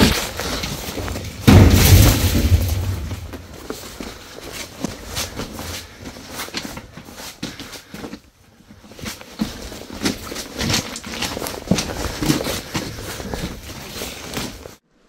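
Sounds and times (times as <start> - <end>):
footsteps on loose rocks: 0.0 - 14.8.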